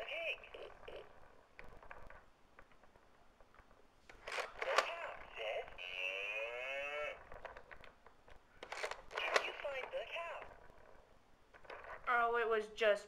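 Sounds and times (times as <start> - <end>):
recorded voice from small speaker: 0.0 - 1.4, 4.6 - 7.4, 9.1 - 10.7, 11.9 - 13.0.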